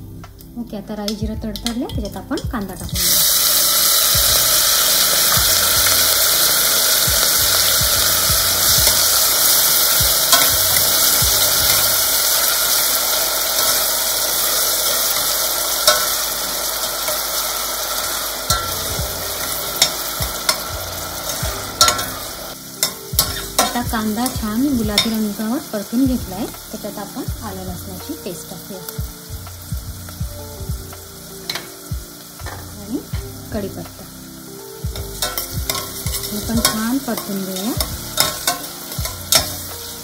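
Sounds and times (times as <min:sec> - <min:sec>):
onion sizzling in hot oil: 0:00.0 - 0:40.0
metal spoon clinking against pot: 0:21.3 - 0:22.2, 0:35.2 - 0:39.6.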